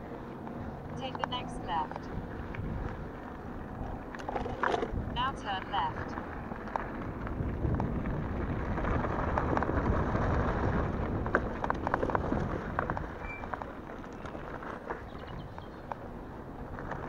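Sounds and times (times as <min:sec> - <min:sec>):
tyres rolling over gravel: 0:00.3 - 0:17.0
wind buffeting microphone: 0:01.8 - 0:17.0.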